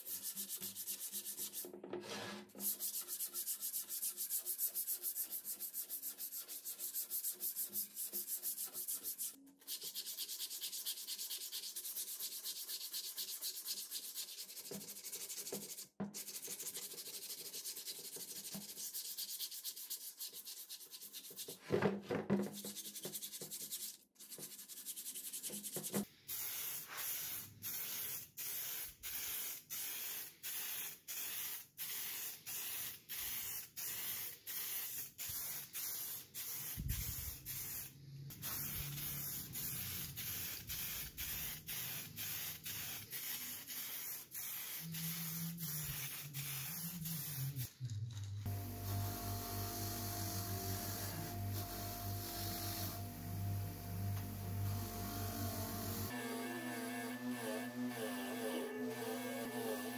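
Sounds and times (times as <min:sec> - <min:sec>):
sandpaper scraping on metal: 0:00.0 - 0:21.6
aerosol spray can hissing: 0:25.4 - 0:47.7, 0:55.1 - 0:56.1.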